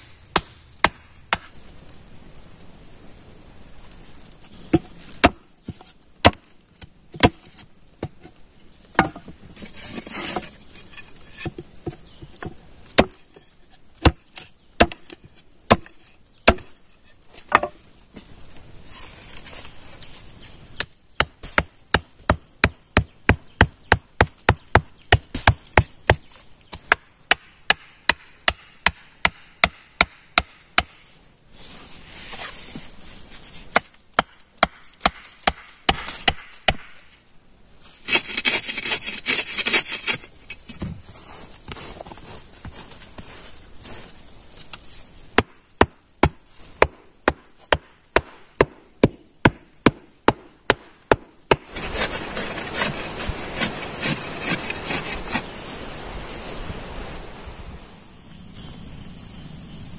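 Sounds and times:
wood being chopped: 0.0 - 1.6, 4.7 - 8.3, 8.9 - 9.4, 11.4 - 13.4, 14.0 - 16.8, 17.4 - 18.3, 20.8 - 31.0, 33.7 - 37.1, 45.3 - 55.4.

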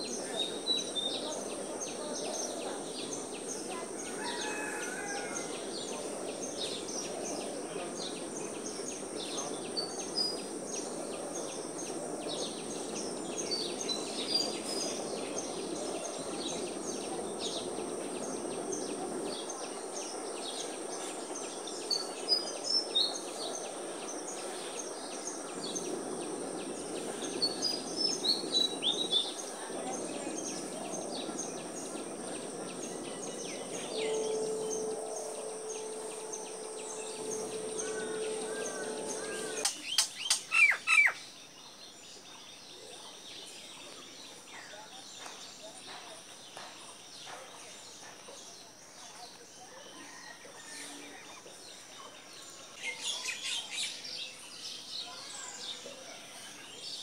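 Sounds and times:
low background hum: 4.4 - 40.4
high insect buzz: 30.6 - 39.7.

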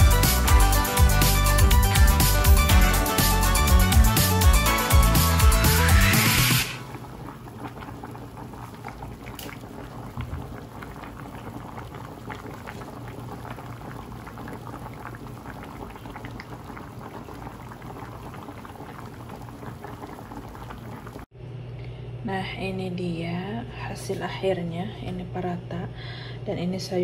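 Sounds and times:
stew bubbling and popping: 6.7 - 21.3.

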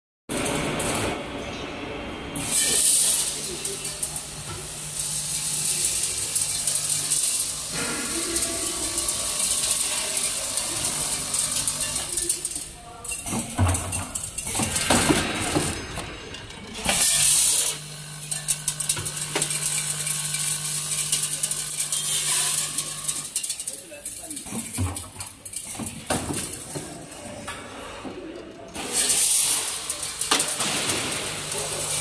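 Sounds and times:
machine humming and clattering: 0.3 - 27.6, 28.6 - 32.0.

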